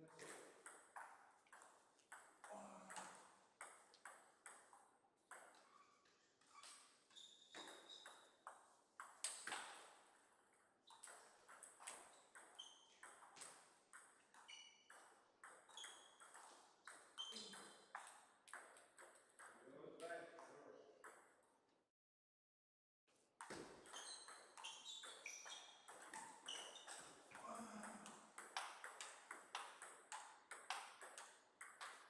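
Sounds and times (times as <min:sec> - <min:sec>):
table tennis ball taps: 0:28.0 - 0:32.0.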